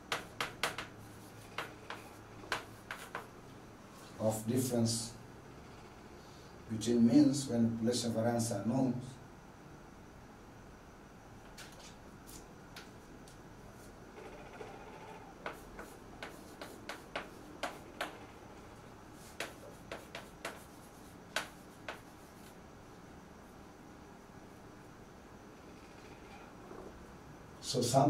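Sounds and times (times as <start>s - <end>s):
chalk tapping on blackboard: 0.0s - 3.3s, 15.4s - 18.2s, 19.2s - 22.6s
chalk scratching: 0.1s - 3.3s, 15.4s - 18.2s, 19.1s - 22.6s.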